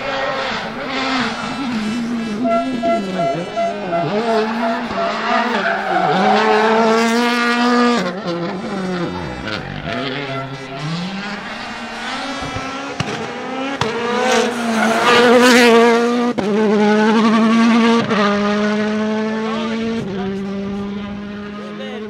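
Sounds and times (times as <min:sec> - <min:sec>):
gear changes: 0:00.0 - 0:17.5
rally car engine accelerating: 0:00.0 - 0:22.0.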